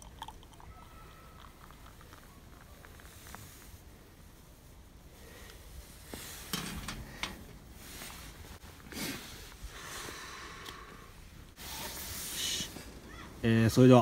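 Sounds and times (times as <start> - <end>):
soft rustling: 2.6 - 9.7.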